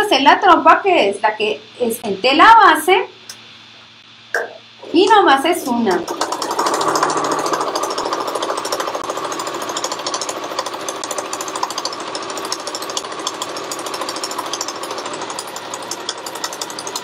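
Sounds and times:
sewing machine stitching: 0:05.6 - 0:17.0.

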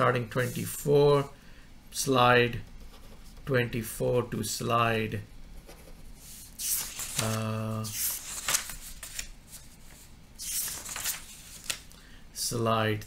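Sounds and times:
paper sheets rustling: 0:06.2 - 0:12.0.

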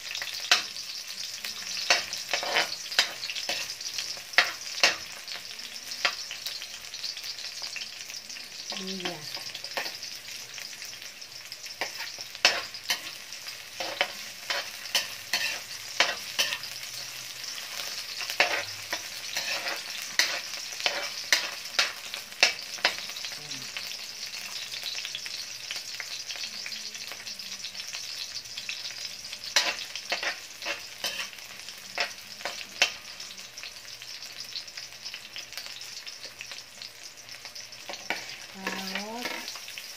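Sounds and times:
onions sizzling in hot oil: 0:00.0 - 0:39.9
metal spatula scraping a wok: 0:01.8 - 0:05.1, 0:11.8 - 0:23.1, 0:29.5 - 0:32.2, 0:37.9 - 0:39.6.

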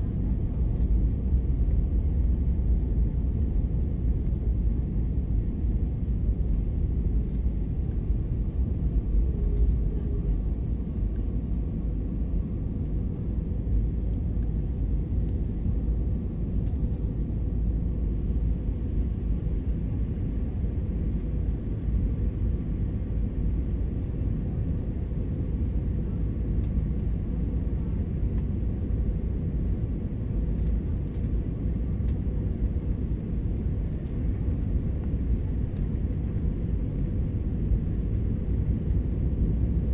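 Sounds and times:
airliner cabin engine noise: 0:00.0 - 0:39.9.

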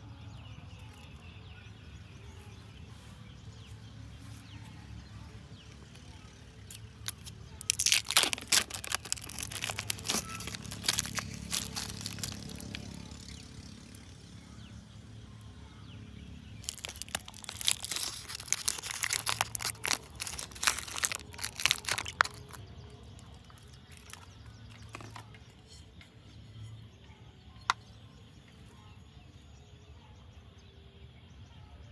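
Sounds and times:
plastic cup crackling when squeezed: 0:06.6 - 0:13.2, 0:16.6 - 0:25.4
lid peeled off plastic cup: 0:06.7 - 0:12.8, 0:16.6 - 0:22.6, 0:23.4 - 0:25.3.

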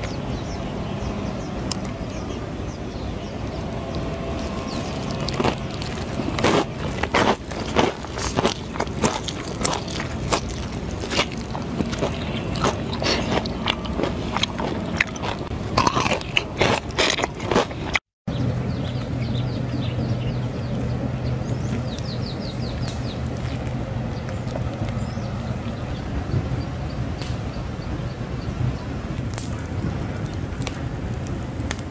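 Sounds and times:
steady low hum: 0:00.0 - 0:31.9
crunchy chewing: 0:03.5 - 0:18.0, 0:20.3 - 0:26.0, 0:29.1 - 0:31.9.

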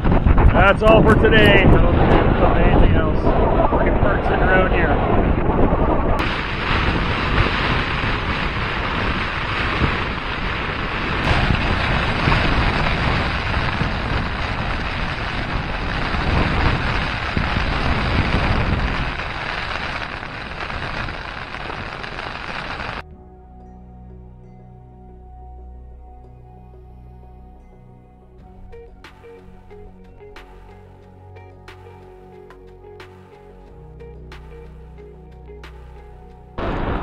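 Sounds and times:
wind gusting on microphone: 0:00.0 - 0:23.0, 0:33.2 - 0:37.0
rain on a tarp: 0:06.2 - 0:23.0.

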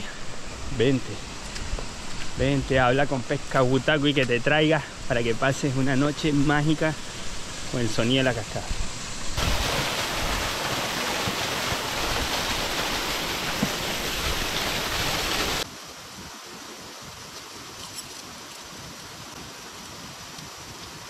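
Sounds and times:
waterfall rushing: 0:09.4 - 0:15.7.

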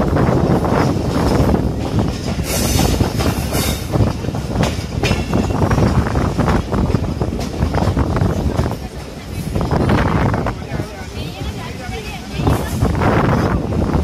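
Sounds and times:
sharp clacks of train wheels: 0:00.0 - 0:14.0
train wheels rumbling on rail: 0:00.0 - 0:14.0.

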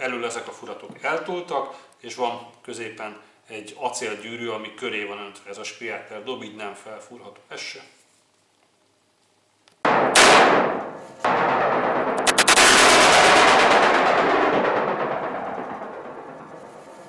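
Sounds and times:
sharp gunshot cracks: 0:09.9 - 0:16.8
blank revolver shots echoing: 0:10.0 - 0:11.0.

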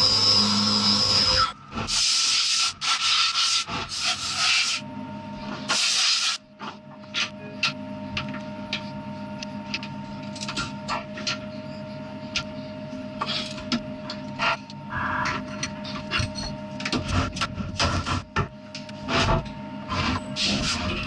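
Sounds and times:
milling machine humming: 0:00.0 - 0:01.9, 0:06.4 - 0:21.0.

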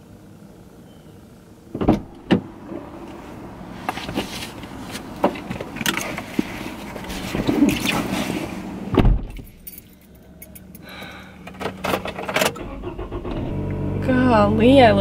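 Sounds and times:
car door opening: 0:01.7 - 0:03.2, 0:03.8 - 0:09.6
clothing and bag rustling: 0:03.8 - 0:08.7.

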